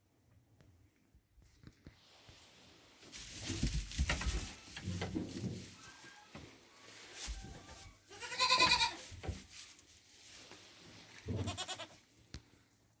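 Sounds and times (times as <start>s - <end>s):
goat kids bleating: 8.1s - 9.1s, 11.3s - 12.0s.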